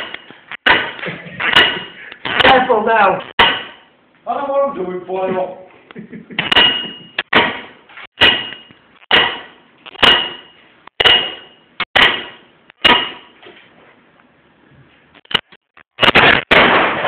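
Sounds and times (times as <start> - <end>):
hammer blows with metallic ring: 0.0 - 2.5, 3.4 - 3.9, 6.4 - 13.4.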